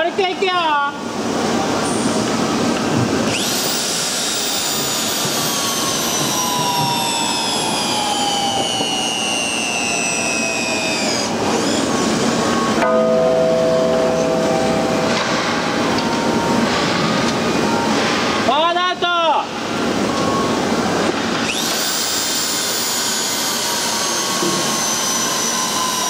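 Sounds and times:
constant mechanical hum: 0:00.0 - 0:26.0
torque wrench drive whining: 0:03.2 - 0:13.0, 0:21.4 - 0:26.0
steady tone: 0:12.5 - 0:18.0.

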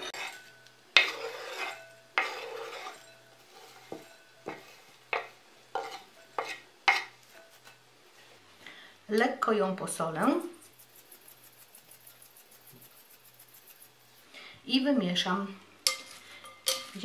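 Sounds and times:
knife scraping cutting board: 0:00.0 - 0:07.8
cabbage shreds rustling into bowl: 0:10.4 - 0:14.2.

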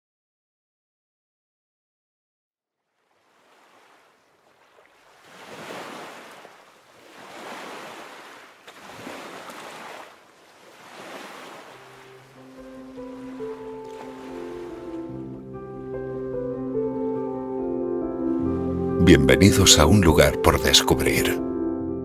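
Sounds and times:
sea waves washing: 0:03.0 - 0:17.6
sustained music notes: 0:12.1 - 0:22.0.

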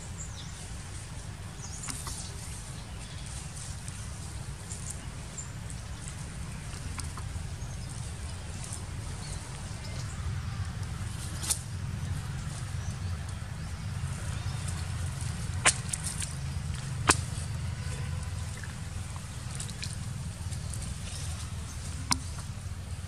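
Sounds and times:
steady low rumble: 0:00.0 - 0:23.0.

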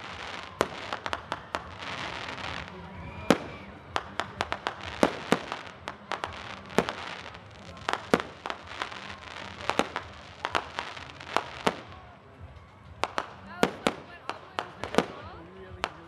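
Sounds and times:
fireworks bangs: 0:00.0 - 0:12.0, 0:12.9 - 0:16.0
fireworks crackle: 0:00.0 - 0:16.0.

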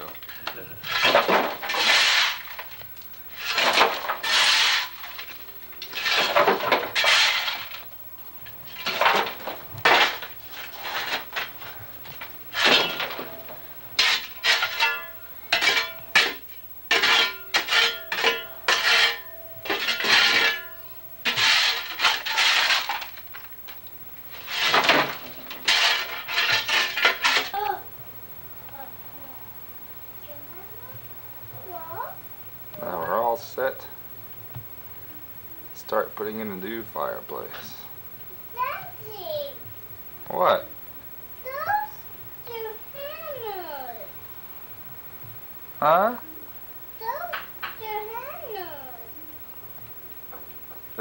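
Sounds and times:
rubble rattling into metal wheelbarrow: 0:00.8 - 0:07.9, 0:08.7 - 0:11.6, 0:12.2 - 0:23.5, 0:24.3 - 0:27.6
shovel scraping rubble: 0:00.8 - 0:07.9, 0:08.7 - 0:11.6, 0:12.5 - 0:13.2, 0:14.0 - 0:23.4, 0:24.3 - 0:27.6.

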